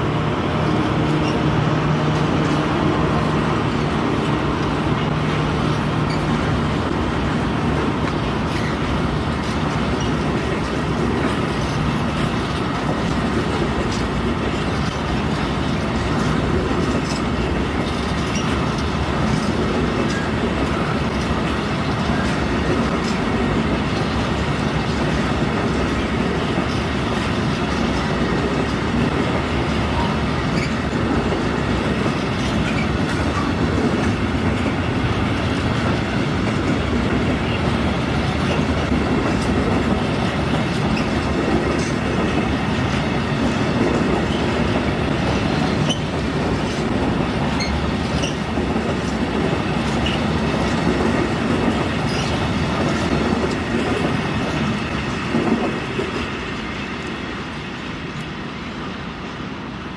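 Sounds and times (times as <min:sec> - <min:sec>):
train wheels rumbling on track: 0:00.0 - 0:59.9
high wheel squeaks: 0:00.7 - 0:01.6, 0:05.8 - 0:06.6, 0:16.9 - 0:19.4, 0:29.8 - 0:31.1, 0:32.1 - 0:33.6, 0:40.7 - 0:42.0, 0:45.5 - 0:48.6, 0:52.0 - 0:52.6.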